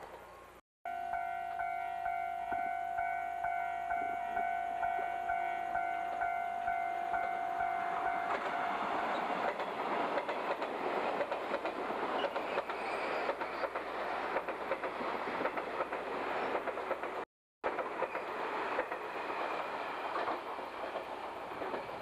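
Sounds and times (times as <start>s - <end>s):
electric train passing at speed: 0.0s - 22.0s
long steady warning tone: 0.3s - 9.6s
wheels clattering over rail joints: 8.3s - 22.0s.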